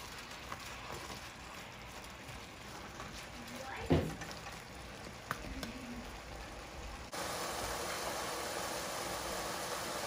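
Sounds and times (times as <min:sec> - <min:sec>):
vegetables sizzling in a frying pan: 0:00.0 - 0:10.0.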